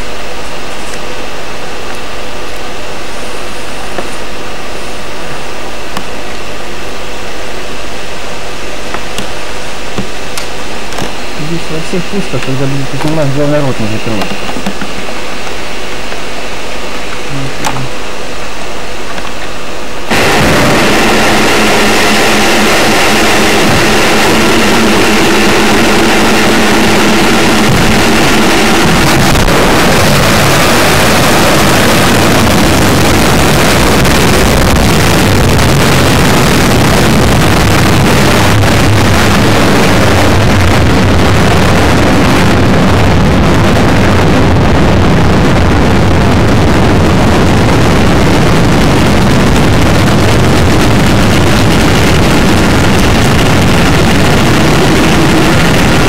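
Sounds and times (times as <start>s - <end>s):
rocket motor roaring: 0.0s - 56.0s
steady tones: 1.4s - 36.6s.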